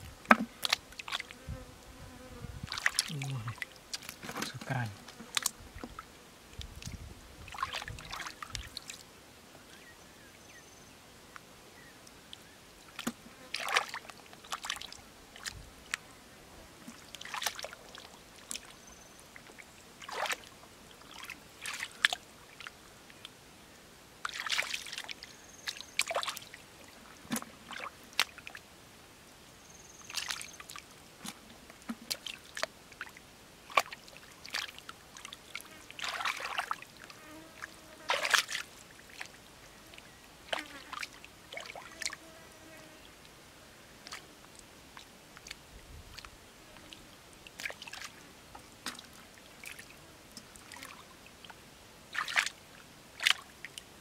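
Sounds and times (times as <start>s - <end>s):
muddy water splashing: 0.3s - 1.3s, 2.7s - 9.0s, 12.3s - 16.0s, 16.8s - 18.8s, 19.5s - 22.8s, 24.2s - 28.6s, 30.1s - 42.2s, 44.0s - 53.9s.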